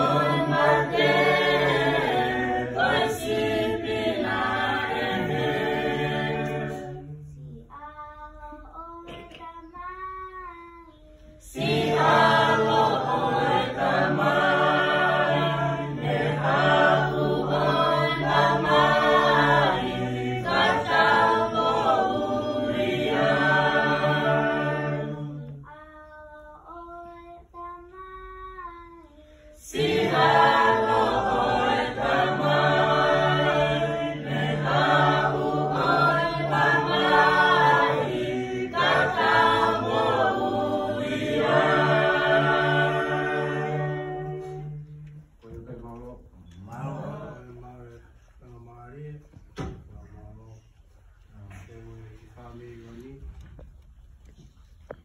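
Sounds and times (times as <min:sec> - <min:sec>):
choir singing a hymn: 0:00.0 - 0:07.6, 0:11.4 - 0:25.7, 0:29.6 - 0:45.6, 0:46.5 - 0:48.1.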